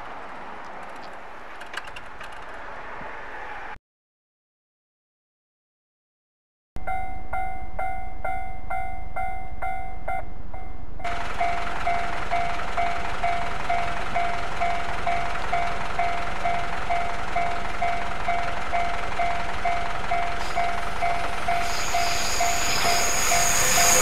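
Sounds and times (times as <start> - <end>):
level crossing warning bell: 6.8 - 24.0
train wheel squeal: 20.1 - 24.0.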